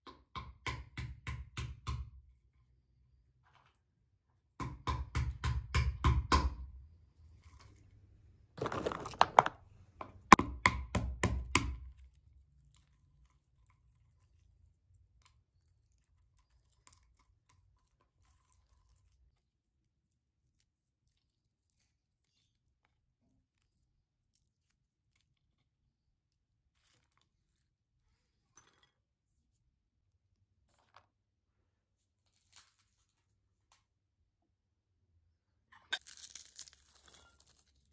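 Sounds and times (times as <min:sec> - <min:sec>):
shells crunching: 0:08.6 - 0:09.6, 0:35.9 - 0:37.9
pestle pounding walnuts on wood: 0:10.3 - 0:11.8.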